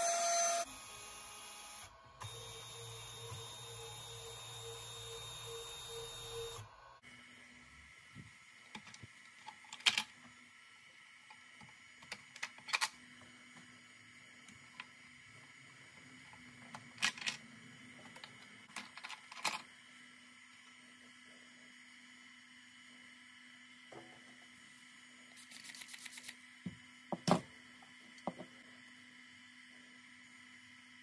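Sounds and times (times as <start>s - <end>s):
cnc router milling: 0.0s - 6.6s.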